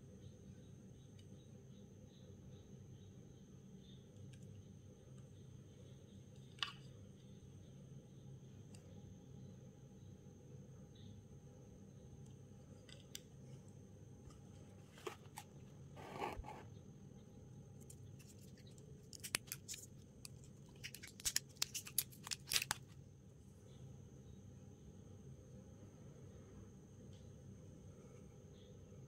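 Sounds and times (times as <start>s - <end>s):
packaging rustling: 20.8s - 22.9s.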